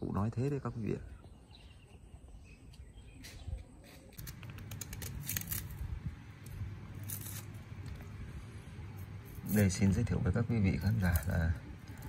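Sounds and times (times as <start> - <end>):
crisp rustling: 4.2 - 5.8.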